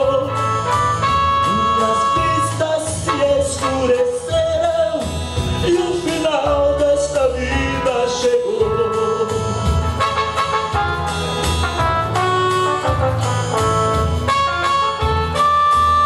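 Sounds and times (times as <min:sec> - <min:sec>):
man singing: 0:00.0 - 0:10.7
electronic keyboard with beat: 0:00.0 - 0:16.0.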